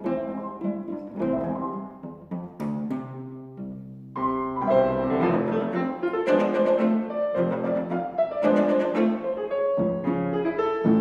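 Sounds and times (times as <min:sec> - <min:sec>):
cello: 0:00.0 - 0:11.0
piano: 0:00.0 - 0:11.0.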